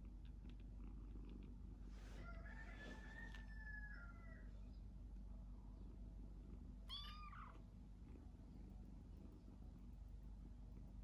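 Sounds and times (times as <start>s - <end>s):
kitten meowing: 6.9s - 7.6s.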